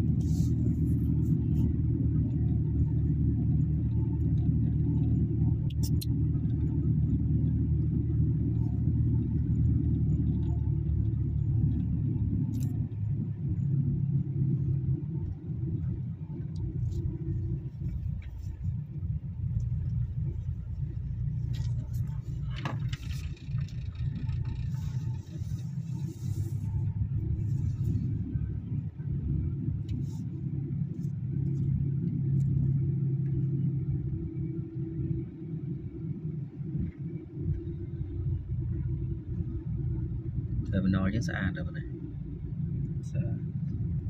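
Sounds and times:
vehicle engine droning: 0:00.0 - 0:44.0.

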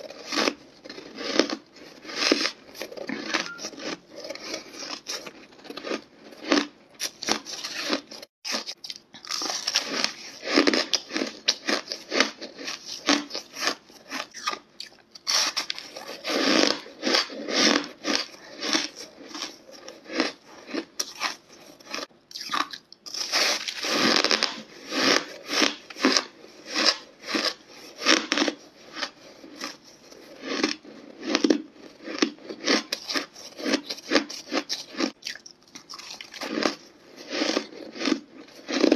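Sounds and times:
person crunching ice: 0:00.0 - 0:38.9.

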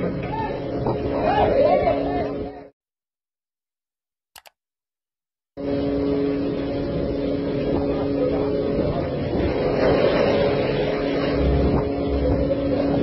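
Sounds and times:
boat engine humming: 0:00.0 - 0:02.7, 0:05.6 - 0:13.0
sea and wind noise: 0:00.0 - 0:02.7, 0:05.6 - 0:13.0
faint click: 0:04.4 - 0:04.6.

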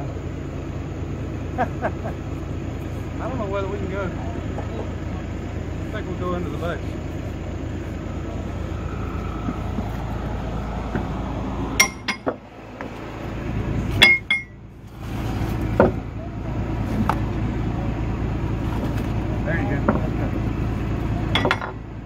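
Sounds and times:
steady low rumble: 0:00.0 - 0:22.0.

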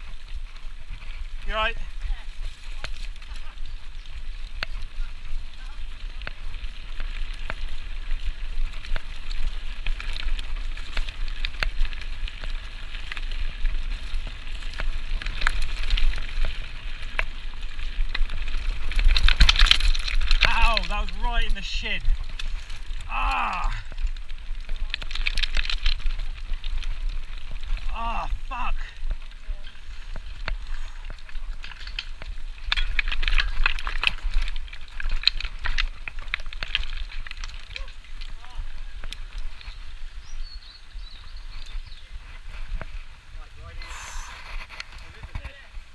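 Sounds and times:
bike clicking and rattling: 0:00.0 - 0:45.9
tyres crackling over dirt and stones: 0:00.0 - 0:45.9
wind rumble on microphone: 0:22.0 - 0:45.9.

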